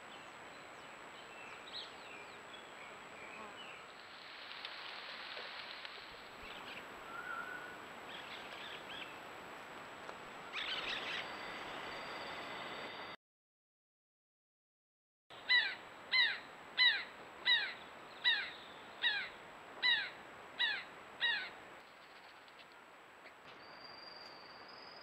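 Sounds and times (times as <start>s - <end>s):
bird chirps and calls: 10.6s - 11.9s, 15.5s - 21.5s.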